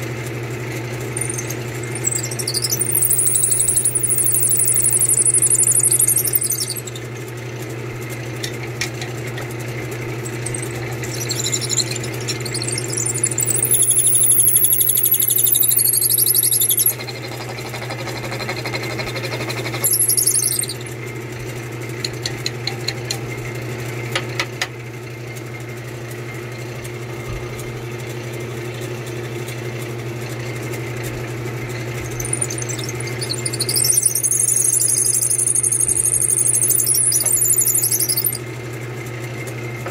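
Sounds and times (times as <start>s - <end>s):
drill bit squealing: 1.2s - 7.1s, 10.2s - 21.0s, 31.8s - 38.4s.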